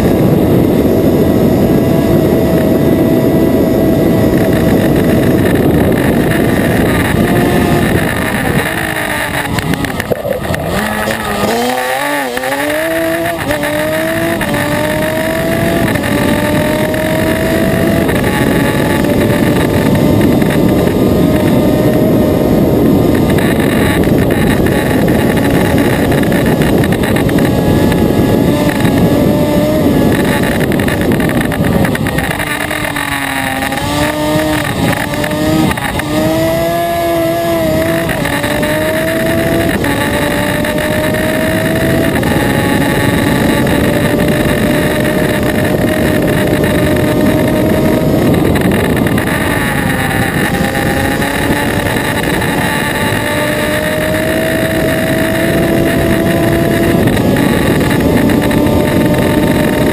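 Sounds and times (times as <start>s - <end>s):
racing engine at high revs: 0.0s - 59.9s
wind rush: 0.0s - 59.9s.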